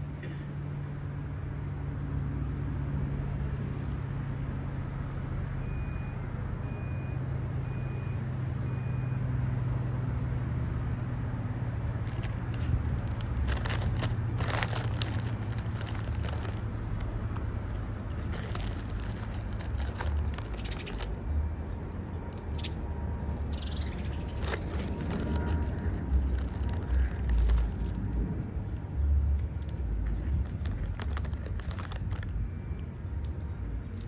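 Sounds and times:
low mechanical hum: 0.0s - 34.0s
chip bag crinkling: 12.0s - 21.2s, 24.2s - 28.3s, 29.4s - 32.5s.

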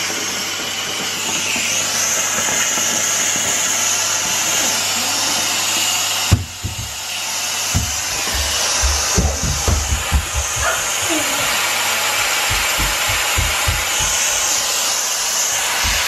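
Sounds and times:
steam mop hissing: 0.0s - 16.0s
knock: 6.3s - 7.0s, 7.8s - 11.6s, 12.2s - 14.9s, 15.6s - 16.0s.

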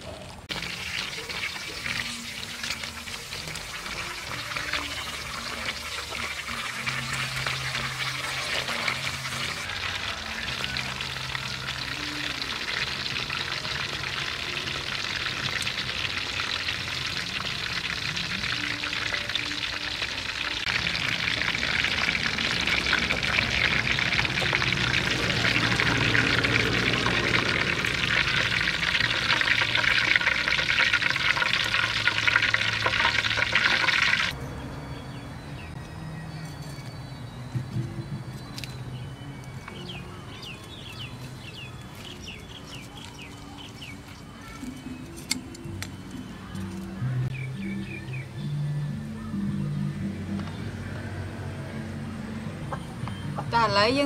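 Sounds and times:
deep-frying crackling sizzle: 0.4s - 34.4s.

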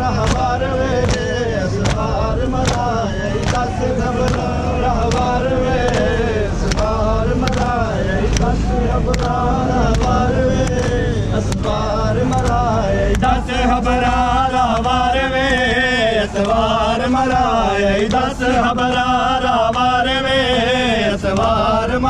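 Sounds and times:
men chanting a lament: 0.0s - 22.0s.

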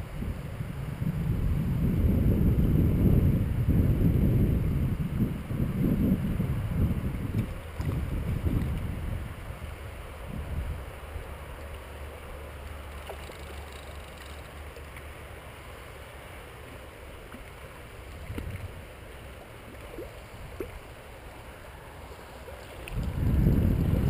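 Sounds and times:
wind buffeting microphone: 0.0s - 11.2s, 18.1s - 18.9s, 22.7s - 24.0s
shallow river water running: 0.0s - 24.0s
faint clicks: 12.6s - 15.1s.

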